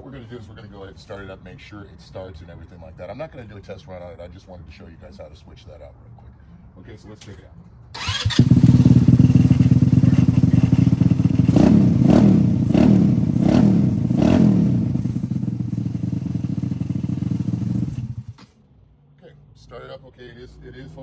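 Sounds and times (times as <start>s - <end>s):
go-kart engine revving and idling: 8.0s - 18.5s.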